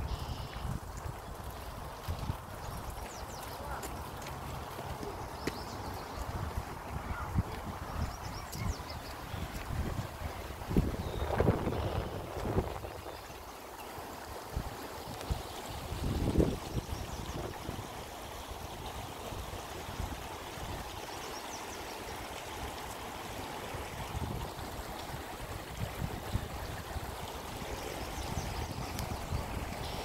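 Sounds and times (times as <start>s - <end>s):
wind rumble on microphone: 0.0s - 3.2s, 5.9s - 13.2s, 14.5s - 17.9s, 23.9s - 27.2s, 28.2s - 29.9s
creek flowing over stones: 0.0s - 30.0s.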